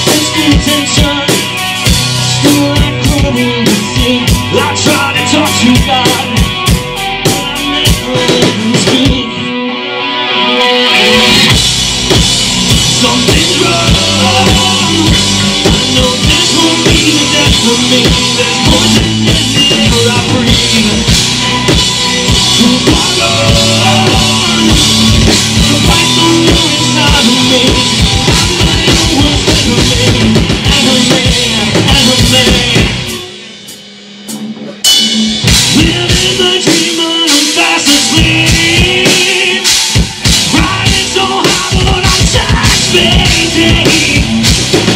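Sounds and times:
drum kit: 0:00.0 - 0:09.5, 0:10.6 - 0:44.9
electric guitars: 0:00.0 - 0:44.9.

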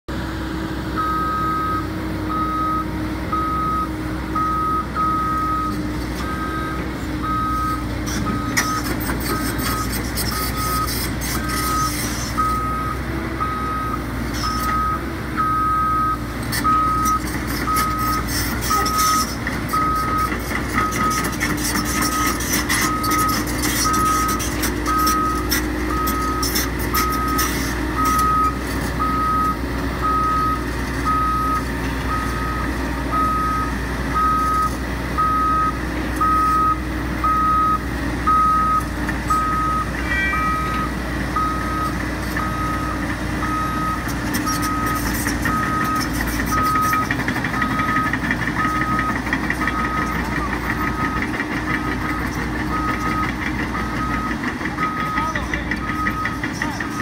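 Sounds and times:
diesel engine hum: 0:00.1 - 0:57.0
excavator travel alarm beeping: 0:00.9 - 0:57.0
clanks and clicks: 0:44.0 - 0:57.0.

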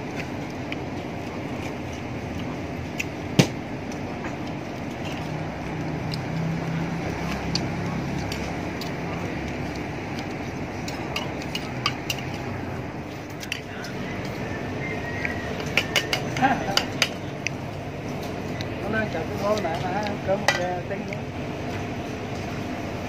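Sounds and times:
low steady rumble: 0:00.0 - 0:23.0
utensils clinking against bowls: 0:10.7 - 0:12.6, 0:15.3 - 0:17.3.

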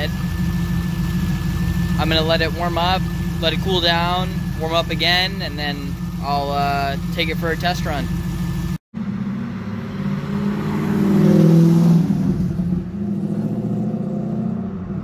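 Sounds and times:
car engine accelerating: 0:00.0 - 0:15.0.

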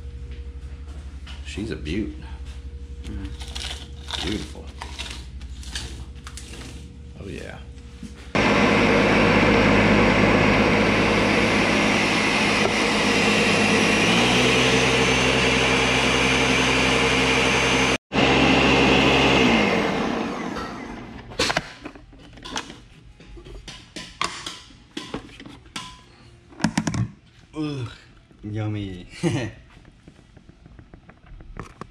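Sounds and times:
blender motor running: 0:08.4 - 0:21.3.

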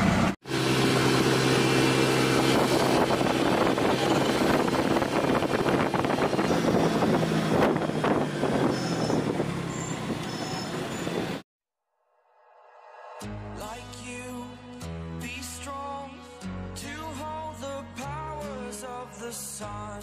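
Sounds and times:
auto-rickshaw engine running: 0:00.0 - 0:11.4
road and wind noise: 0:00.0 - 0:11.4.

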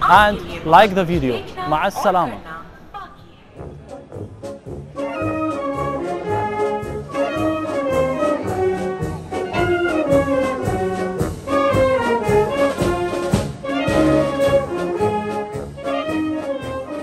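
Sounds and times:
wind band playing: 0:03.5 - 0:17.0.

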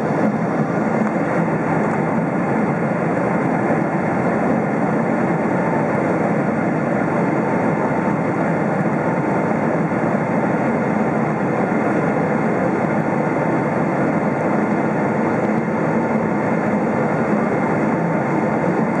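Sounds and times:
jet engine and airflow noise: 0:00.0 - 0:19.0.

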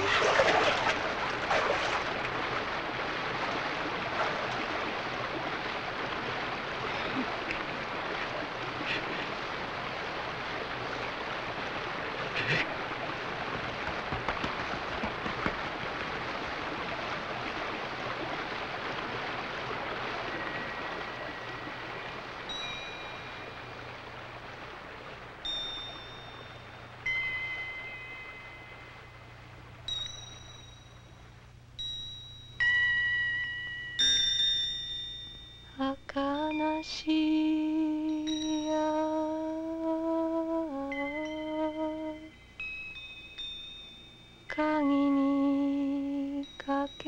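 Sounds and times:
running water rushing: 0:00.0 - 0:31.6.

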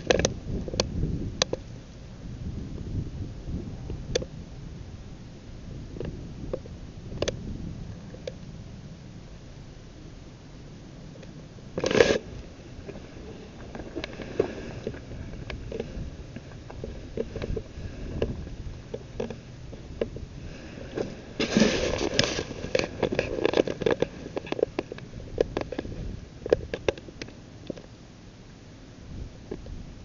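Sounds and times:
clicks and crackles: 0:00.0 - 0:02.0, 0:06.0 - 0:08.5, 0:11.2 - 0:28.0
low rumble: 0:00.0 - 0:30.0
rustling noise: 0:11.8 - 0:26.9.

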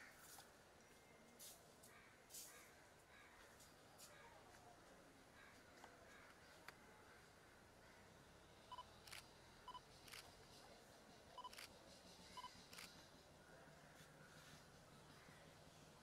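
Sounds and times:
camera autofocus beep: 0:08.7 - 0:10.2, 0:11.4 - 0:11.7, 0:12.4 - 0:13.0.

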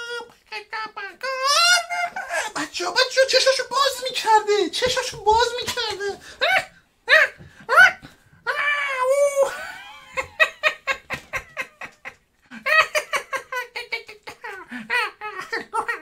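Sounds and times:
man laughing hard: 0:01.6 - 0:02.7, 0:09.4 - 0:16.0.

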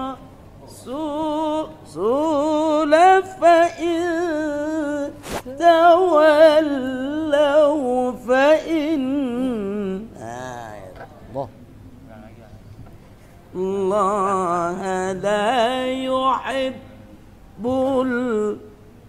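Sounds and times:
man reciting melodically: 0:00.0 - 0:11.6, 0:13.6 - 0:17.0.

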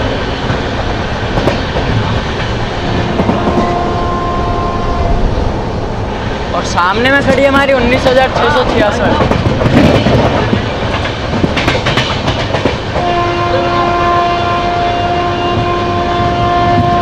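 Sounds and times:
train running on rails: 0:00.0 - 0:17.0
train horn blast: 0:02.8 - 0:05.5, 0:13.0 - 0:17.0
wheel clatter over rail joints: 0:07.2 - 0:13.2.

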